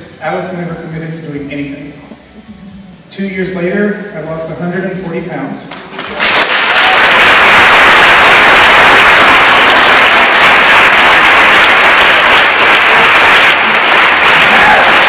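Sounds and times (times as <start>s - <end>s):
person clapping near microphone: 5.7s - 15.0s
audience applause: 5.8s - 15.0s.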